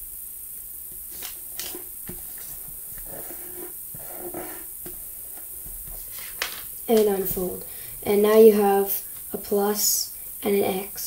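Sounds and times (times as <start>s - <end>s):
soft taps and rustles: 0.9s - 8.5s
paper being creased by hand: 1.2s - 4.7s.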